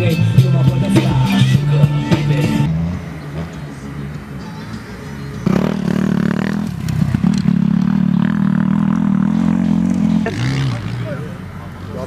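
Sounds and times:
motorcycle engine running: 5.1 - 11.3.

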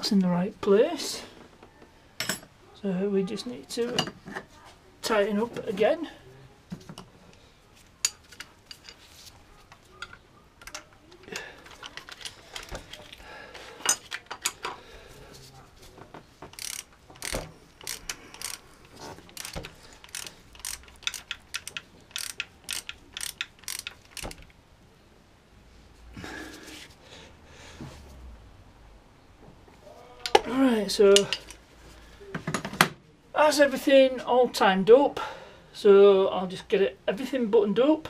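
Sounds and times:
ratchet wrench clicking: 16.5 - 24.5.

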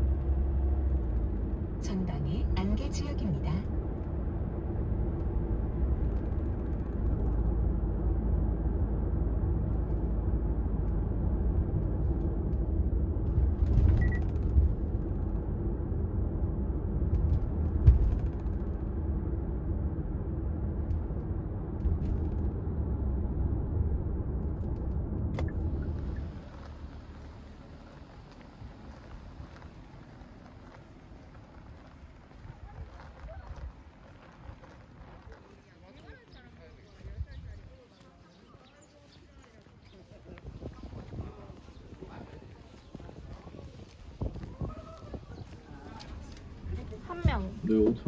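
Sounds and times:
car cabin road rumble: 0.0 - 48.0
hissing outdoor background: 25.4 - 48.0.

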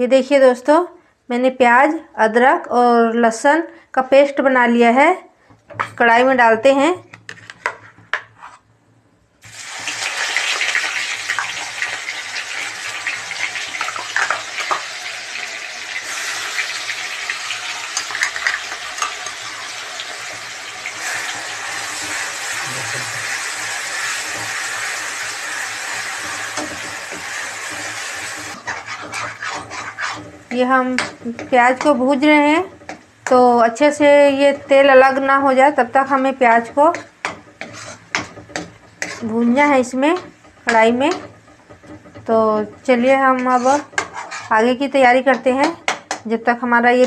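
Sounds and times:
paste sizzling in hot oil: 9.4 - 44.7
metal ladle scraping: 26.0 - 32.0, 36.7 - 42.3, 43.4 - 44.6.

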